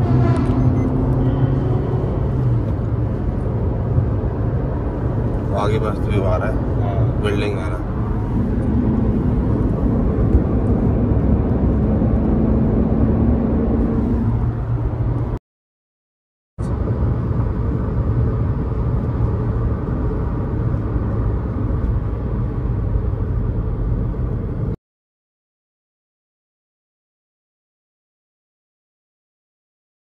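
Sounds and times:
engine and road rumble: 0:00.0 - 0:15.4, 0:16.6 - 0:24.8.

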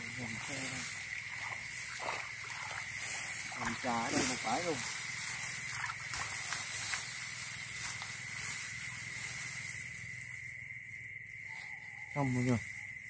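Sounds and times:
insects chirring: 0:00.0 - 0:13.0
rustling through plants: 0:00.0 - 0:13.0.

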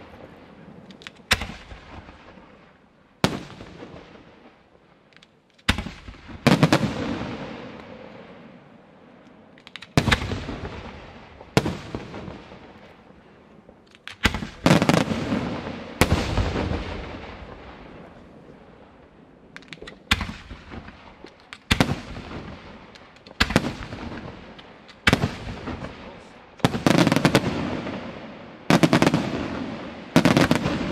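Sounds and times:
rolling echo: 0:00.0 - 0:30.9
small firework pops: 0:00.8 - 0:02.4, 0:05.1 - 0:06.8, 0:09.2 - 0:10.7, 0:19.5 - 0:27.4.

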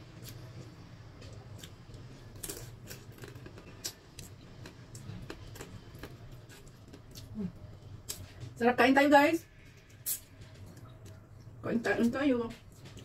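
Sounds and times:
close-up eating sounds: 0:00.0 - 0:08.6
faint low hum: 0:00.0 - 0:13.0.

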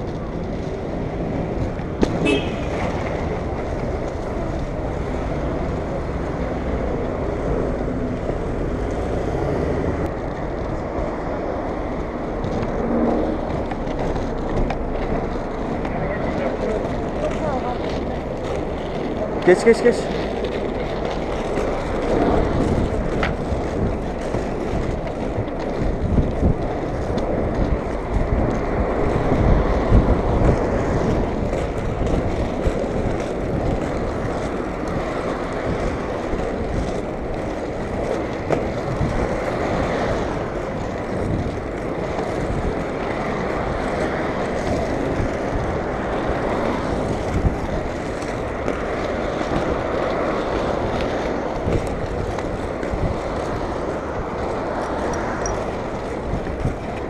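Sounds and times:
skate wheels rolling on asphalt: 0:00.0 - 0:57.0
wind on microphone: 0:20.1 - 0:57.0.

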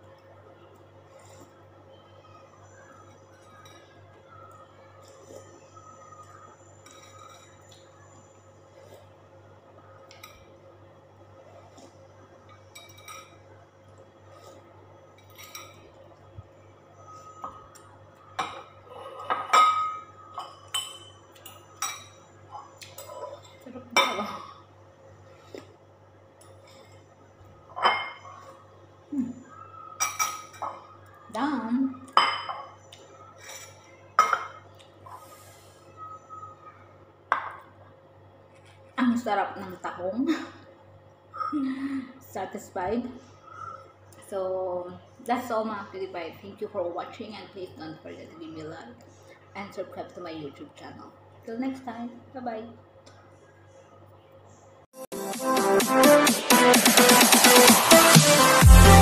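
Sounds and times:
low steady hum: 0:00.0 - 0:54.9
ceramic bowls clinking: 0:06.8 - 0:07.8, 0:12.6 - 0:13.5, 0:18.4 - 0:24.5, 0:27.7 - 0:28.5, 0:30.0 - 0:31.0, 0:32.1 - 0:32.8, 0:33.4 - 0:34.7
metal spoon clinking bowl: 0:06.8 - 0:07.8, 0:12.5 - 0:13.5, 0:19.3 - 0:22.3.

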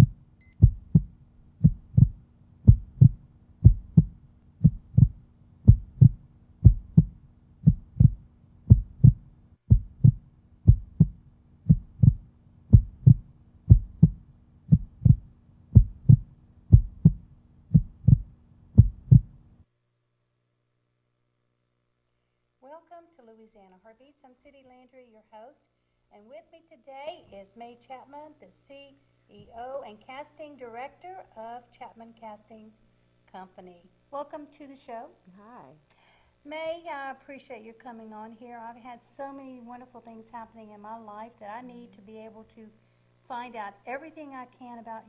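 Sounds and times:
heartbeat double thump: 0:00.0 - 0:19.4
faint low hum: 0:00.0 - 0:45.0.

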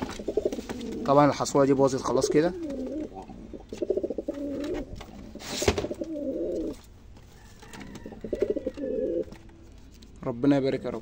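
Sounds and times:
pigeons cooing: 0:00.0 - 0:01.2, 0:01.8 - 0:06.9, 0:07.7 - 0:09.4.

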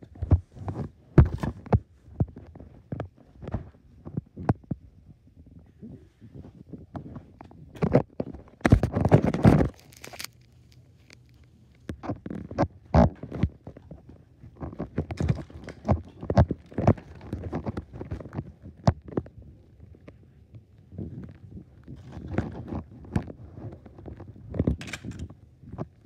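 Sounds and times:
phone handling rustles and knocks: 0:07.0 - 0:10.3, 0:24.0 - 0:25.9.

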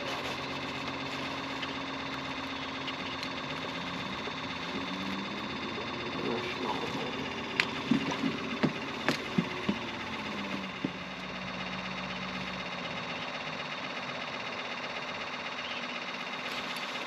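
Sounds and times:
boat motor running: 0:00.0 - 0:17.0
low hum: 0:00.0 - 0:17.0.

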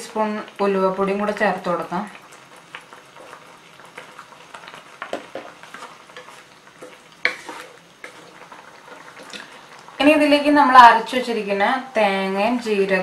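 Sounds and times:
curry simmering sizzle: 0:00.0 - 0:13.0
wooden spatula scraping pan: 0:04.0 - 0:09.6.

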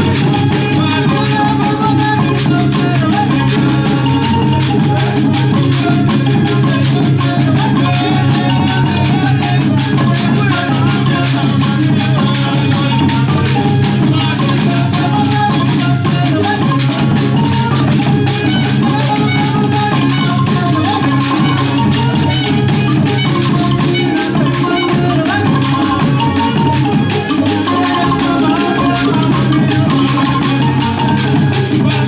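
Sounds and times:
drums and shakers: 0:00.0 - 0:32.0.

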